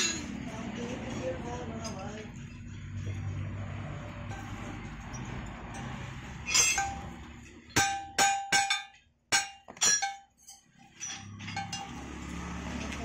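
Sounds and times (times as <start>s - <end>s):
metal-on-metal clinks: 4.3s - 13.0s.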